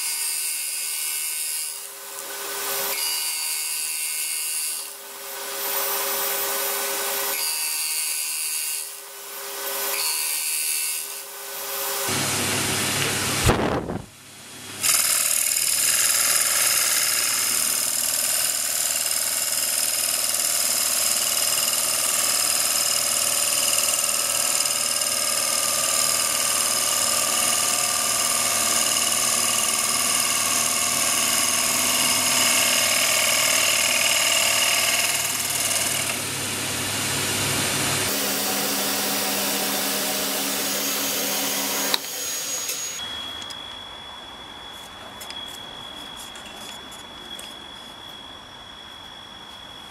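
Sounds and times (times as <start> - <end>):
lathe machine whine: 19.7 - 49.9.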